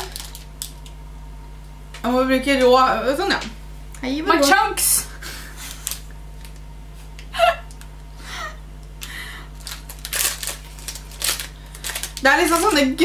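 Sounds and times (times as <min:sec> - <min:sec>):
person giggling: 0:05.1 - 0:06.0, 0:07.2 - 0:08.6.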